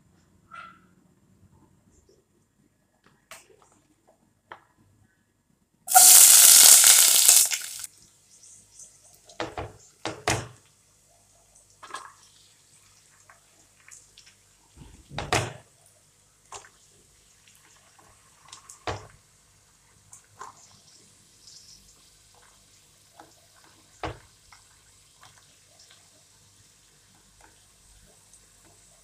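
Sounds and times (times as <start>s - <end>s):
faint oil sizzle: 5.9s - 8.6s, 15.8s - 29.0s.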